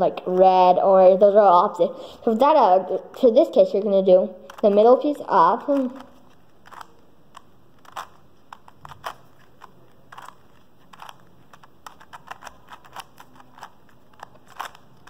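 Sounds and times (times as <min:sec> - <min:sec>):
plastic puzzle cube clicking: 0:04.5 - 0:04.9, 0:05.7 - 0:15.0.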